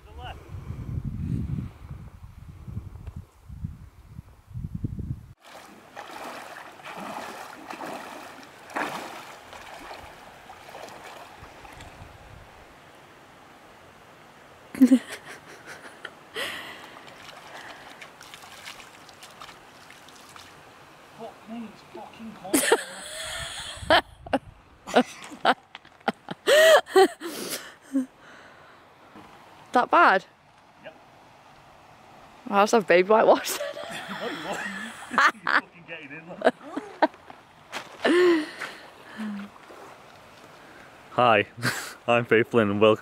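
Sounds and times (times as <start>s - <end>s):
wind rumble on microphone: 0.0s - 5.4s, 11.0s - 12.7s, 23.2s - 24.8s
water splashing around legs: 5.4s - 12.0s, 16.6s - 20.6s.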